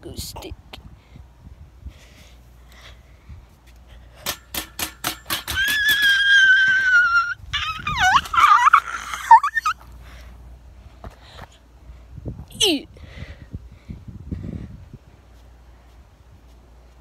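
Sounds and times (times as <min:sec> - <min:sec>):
dog yipping: 0:05.5 - 0:09.8
dog whining: 0:05.6 - 0:09.8.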